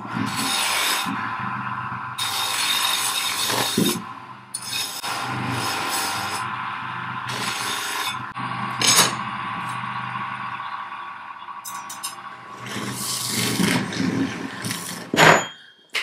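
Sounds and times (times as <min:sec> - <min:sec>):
metal scraping: 0:00.0 - 0:16.0
sharp metal clink: 0:11.6 - 0:12.2.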